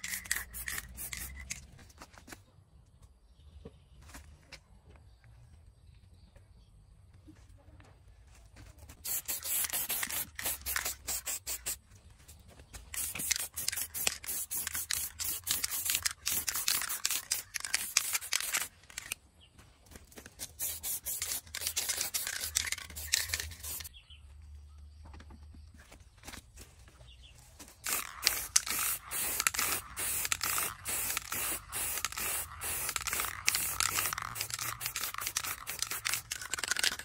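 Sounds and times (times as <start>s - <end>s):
spray paint hissing: 0.0s - 1.8s, 9.0s - 11.8s, 12.8s - 19.2s, 20.2s - 23.9s, 27.8s - 37.0s.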